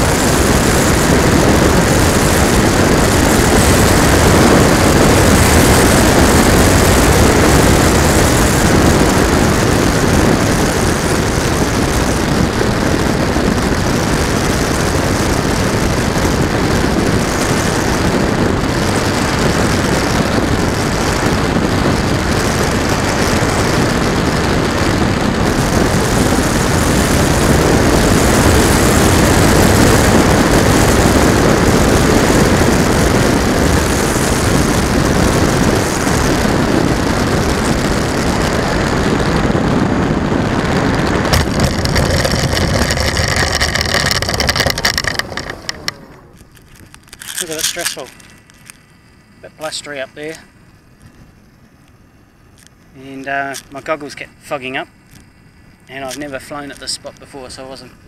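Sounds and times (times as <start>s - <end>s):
loud wind rush: 0.0s - 56.4s
model plane motor and propeller: 0.0s - 58.0s.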